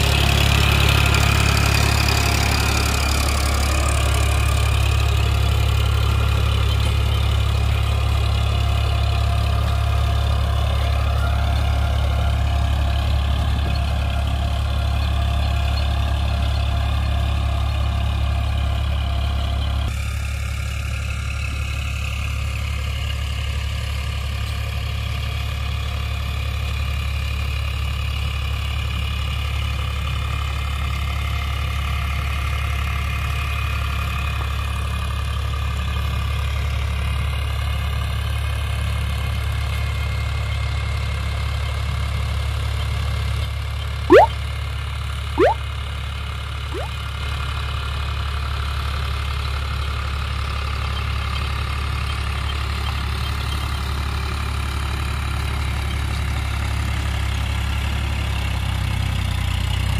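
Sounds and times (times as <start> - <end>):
tractor diesel engine droning: 0.0 - 25.0
quick rising whistles: 44.1 - 44.3.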